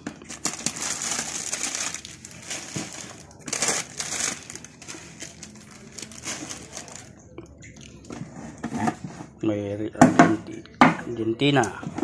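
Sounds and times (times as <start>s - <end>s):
plastic packets crinkling: 0.0s - 8.0s.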